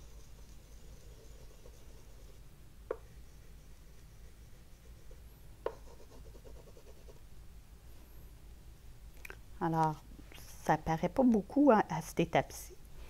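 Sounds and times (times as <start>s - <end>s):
oil pastel scratching on board: 0.0s - 7.2s.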